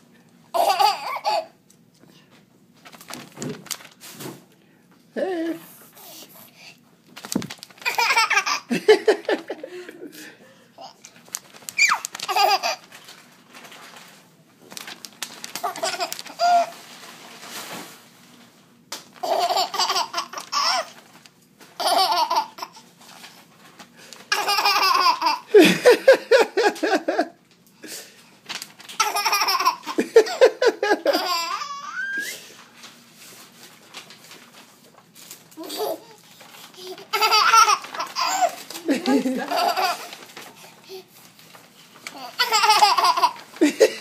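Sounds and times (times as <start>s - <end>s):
baby laughing: 0.5s - 1.6s, 7.8s - 9.7s, 11.8s - 12.9s, 15.6s - 16.8s, 19.2s - 21.0s, 21.8s - 22.9s, 24.3s - 27.2s, 29.0s - 32.2s, 35.6s - 41.1s, 42.1s - 44.0s.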